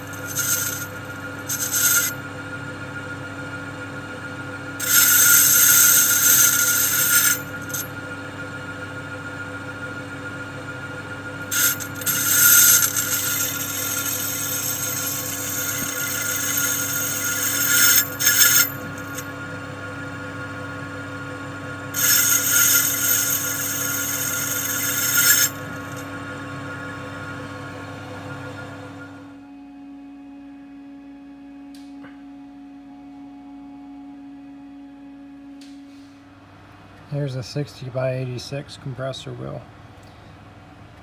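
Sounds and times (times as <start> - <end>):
hissy scraping of cutting tool: 0.0 - 2.2, 4.8 - 7.9, 11.5 - 19.3, 22.0 - 26.1
metal lathe humming: 0.0 - 28.4.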